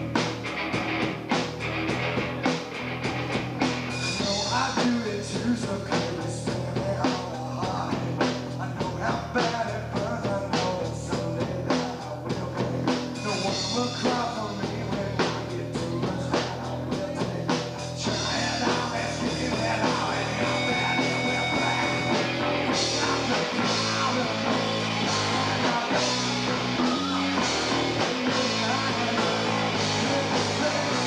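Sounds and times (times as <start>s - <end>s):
distorted electric guitar: 0.0s - 5.6s, 12.4s - 31.0s
bass guitar: 0.0s - 31.0s.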